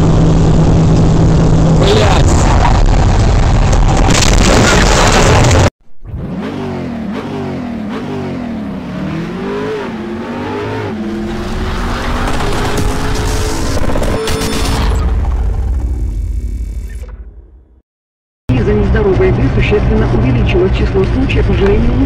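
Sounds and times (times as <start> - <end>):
road and engine noise in car: 0.0 - 3.8, 18.5 - 22.0
car engine revving: 0.0 - 15.5.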